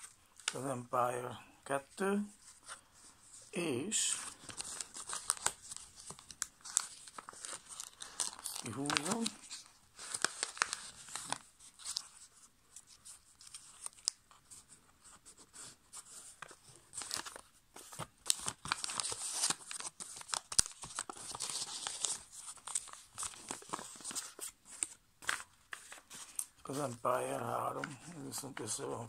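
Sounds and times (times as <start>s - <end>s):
paper rustling and crinkling: 2.3s - 29.0s
sharp paper crackles: 4.0s - 14.2s, 16.4s - 27.0s.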